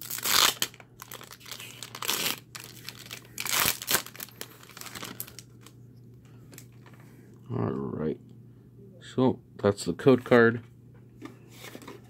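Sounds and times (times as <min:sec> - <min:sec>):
foil wrapper tearing and crinkling: 0:00.0 - 0:05.7.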